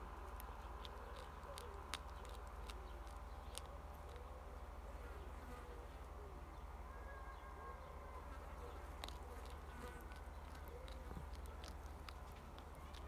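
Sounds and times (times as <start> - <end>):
animal crunching kibble: 0.0 - 4.8, 8.5 - 13.0.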